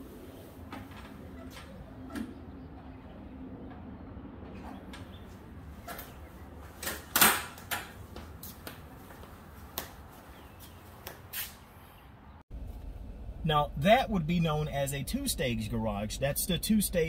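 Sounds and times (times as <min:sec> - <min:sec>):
footsteps on garage floor: 0:04.5 - 0:11.6.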